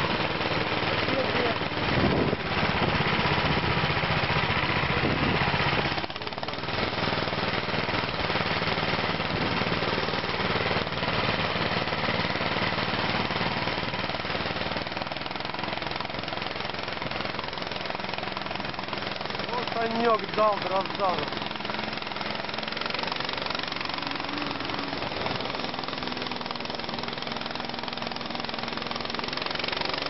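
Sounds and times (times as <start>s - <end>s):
small engine chugging: 0.0s - 30.0s.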